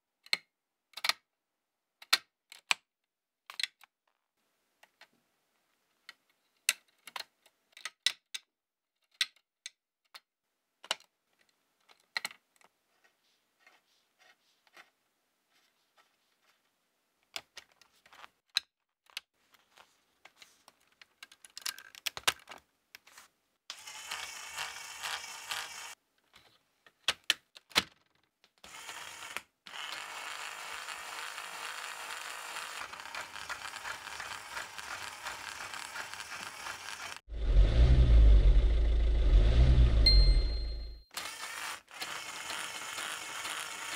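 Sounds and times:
plastic parts clicking and snapping: 0:00.2 - 0:01.3, 0:02.0 - 0:04.2, 0:06.0 - 0:12.7, 0:20.2 - 0:23.1, 0:26.2 - 0:28.6
small electric motor whirring: 0:23.7 - 0:26.0, 0:28.6 - 0:38.8, 0:41.2 - 0:43.9.

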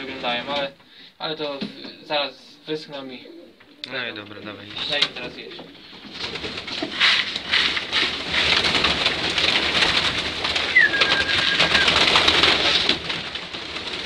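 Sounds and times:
pigeons cooing: 0:01.7 - 0:13.2
beaks pecking grain: 0:04.6 - 0:14.0
pigeon wingbeats: 0:04.8 - 0:14.0
whistle-like tone: 0:10.7 - 0:12.1.

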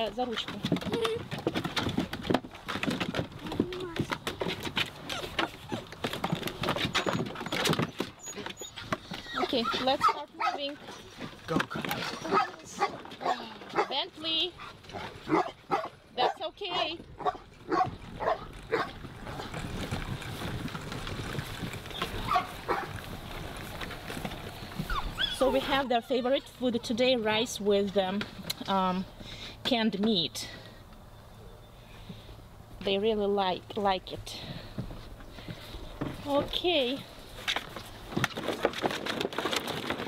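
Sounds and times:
wagon rolling over grass: 0:00.0 - 0:31.1, 0:32.0 - 0:40.0
puppies whimpering: 0:05.0 - 0:10.6, 0:24.8 - 0:26.4.

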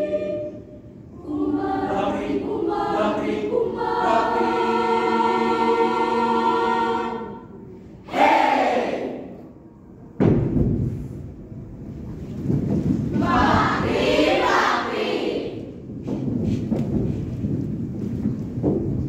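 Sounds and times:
choir singing in harmony: 0:00.0 - 0:09.4, 0:13.2 - 0:15.8.

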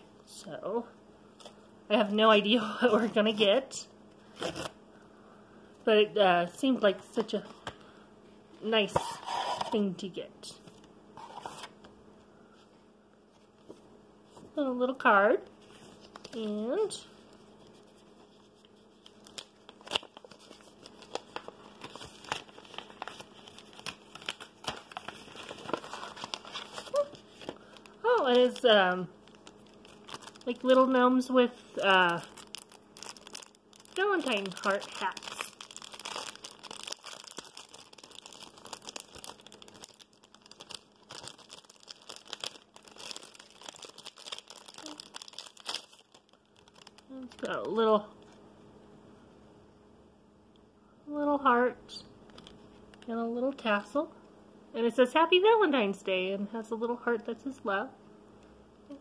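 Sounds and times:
wrapping crinkling: 0:15.6 - 0:48.4, 0:52.3 - 0:53.1.

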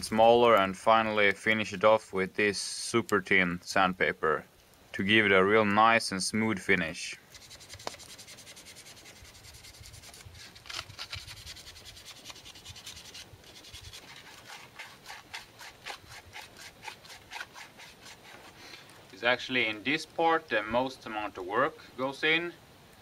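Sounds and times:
sandpaper rubbing wood: 0:07.3 - 0:18.6.

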